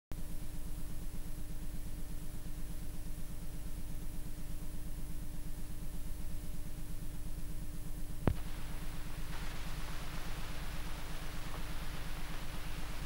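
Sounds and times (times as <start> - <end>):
faint steady tone: 0.2 - 13.0
pulsing electrical hum and buzz: 0.2 - 13.0
hiss: 8.3 - 13.0.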